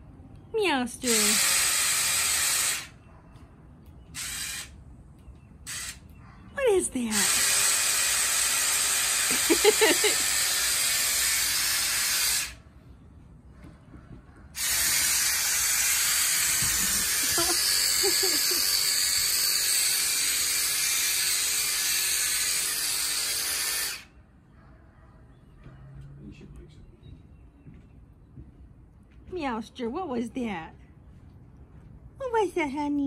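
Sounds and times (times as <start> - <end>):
power drill running: 1.1 - 3.0, 4.2 - 4.8, 5.7 - 6.0, 7.1 - 12.6, 14.6 - 24.1.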